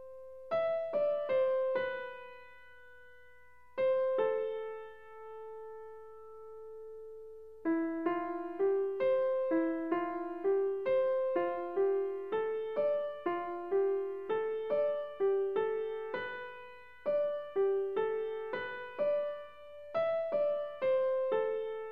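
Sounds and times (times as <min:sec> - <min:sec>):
piano melody: 0:00.0 - 0:21.9.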